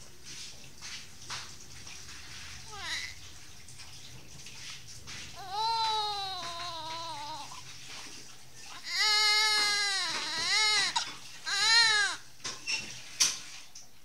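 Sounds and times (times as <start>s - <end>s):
newborn baby crying: 2.7s - 3.2s, 5.4s - 7.7s, 8.6s - 12.3s.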